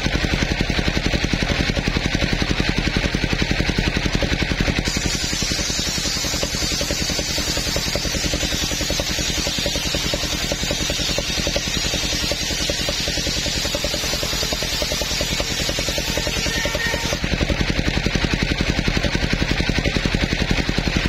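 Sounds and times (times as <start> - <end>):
engine chugging: 0.0 - 21.0
saw blade hissing through wood: 3.7 - 18.7.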